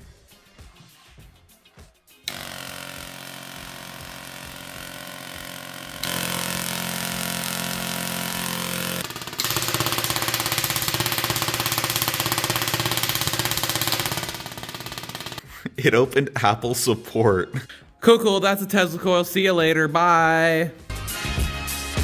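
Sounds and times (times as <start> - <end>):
electric arcs buzzing: 2.3 - 15.4.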